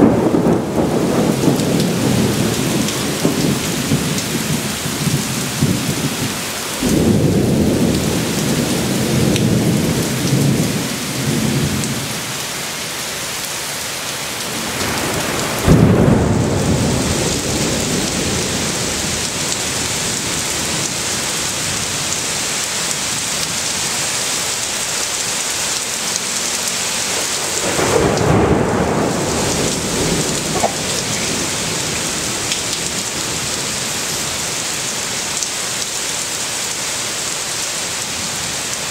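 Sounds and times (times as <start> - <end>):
thunder rumbling: 0.0 - 12.1, 14.5 - 22.1, 27.2 - 34.5
heavy rain falling: 0.0 - 38.9.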